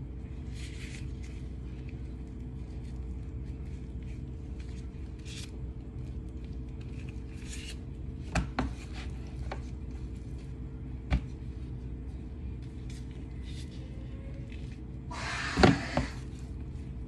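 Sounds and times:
steady low hum: 0.0 - 17.0
plastic gloves rustling: 0.1 - 8.2.

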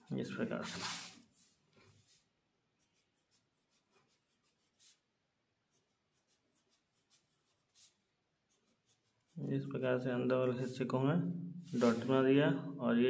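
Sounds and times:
pencil scratching on paper: 0.4 - 9.8.

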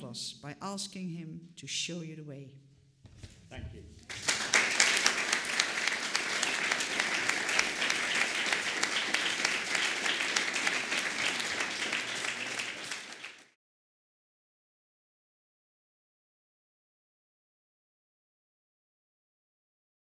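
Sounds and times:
audience clapping: 4.1 - 13.6.

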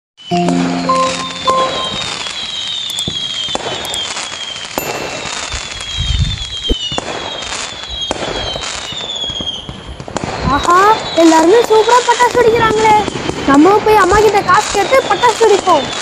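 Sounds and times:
firework whistles falling in pitch: 0.2 - 13.5, 14.1 - 16.0
firework bangs and crackle: 0.2 - 16.0.

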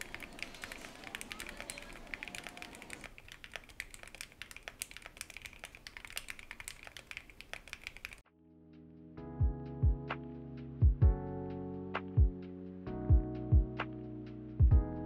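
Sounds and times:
mechanical keyboard typing: 0.0 - 8.2.

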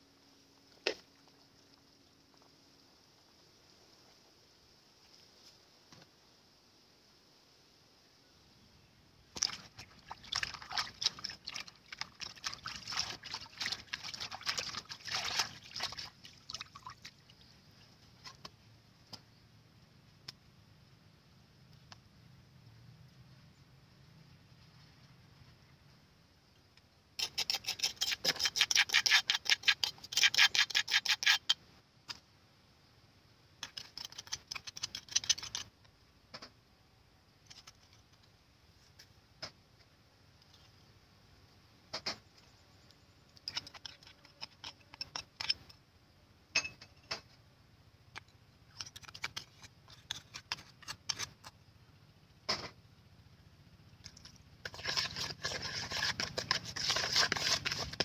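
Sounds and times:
hand-mixing wet ingredients: 9.4 - 16.9, 54.1 - 58.0.

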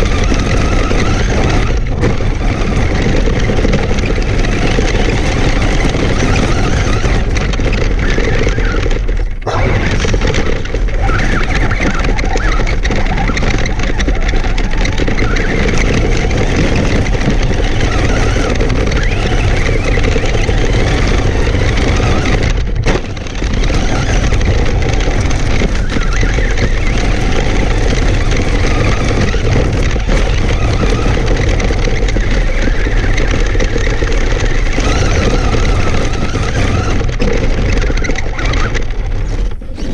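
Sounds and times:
toy truck drive noise: 0.0 - 39.9
tyres rushing over gravel: 0.0 - 39.9.

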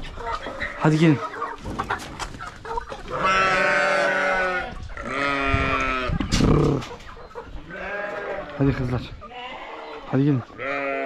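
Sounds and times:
sheep bleating: 3.1 - 6.2, 7.7 - 8.7, 9.3 - 10.0, 10.6 - 11.0.

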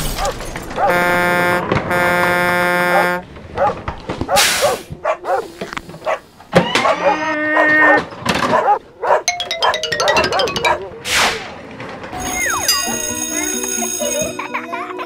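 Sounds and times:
cartoon dog barks: 0.8 - 1.0, 2.9 - 5.5, 6.1 - 11.0
buzzy electronic horn tone: 0.9 - 3.2.

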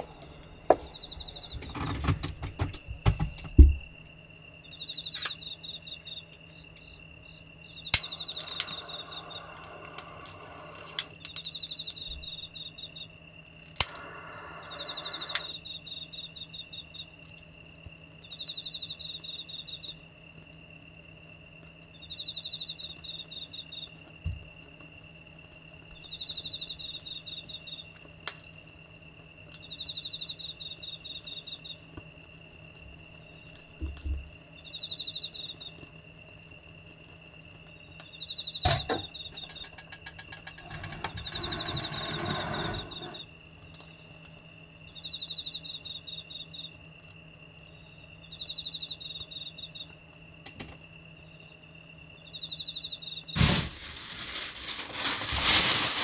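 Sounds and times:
faint steady hum: 0.0 - 55.2
crickets chirping: 0.0 - 56.0
lighter hissing and clicking: 7.9 - 11.5, 13.6 - 15.7.

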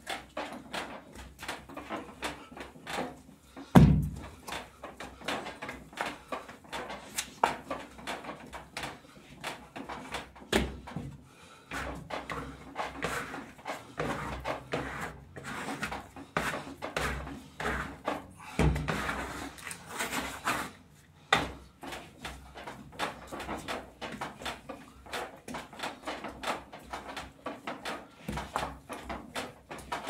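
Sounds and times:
dough slapping and knocking: 0.0 - 20.7, 21.3 - 30.0
dough thumping on surface: 3.7 - 4.4.

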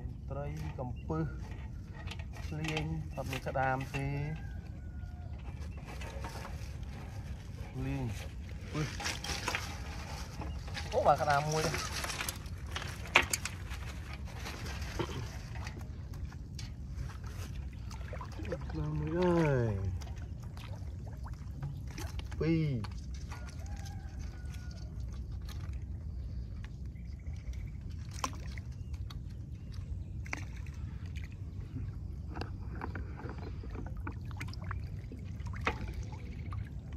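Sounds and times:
faint water sounds: 0.0 - 36.9
fishing net rustling and clicking: 0.5 - 36.9
steady low rumble: 24.9 - 36.9.

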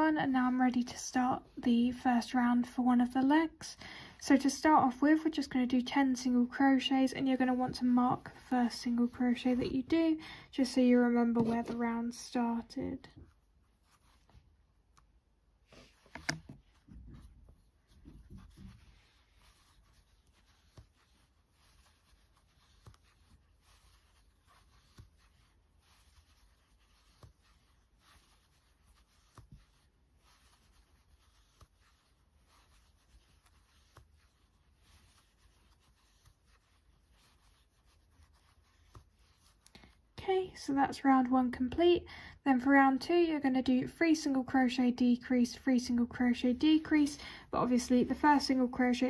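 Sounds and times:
crochet hook rustling and clicking: 15.8 - 37.6.

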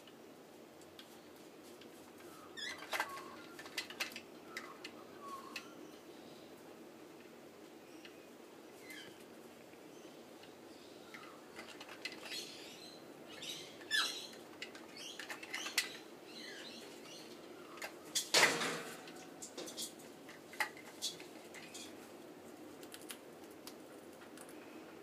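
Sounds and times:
plastic toy clatter: 2.7 - 4.2, 11.6 - 12.3.

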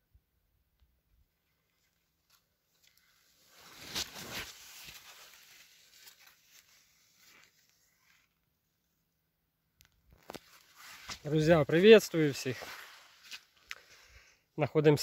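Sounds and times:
light crackles: 0.7 - 8.4, 9.8 - 14.3
leaves rustling against phone: 1.6 - 8.4, 10.1 - 14.0.

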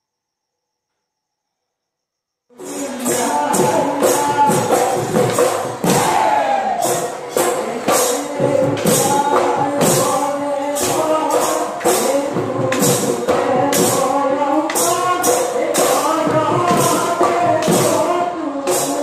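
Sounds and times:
drums: 2.5 - 19.0
hand cymbals clashing: 2.6 - 6.2, 6.8 - 14.1
men singing together: 2.6 - 19.0.

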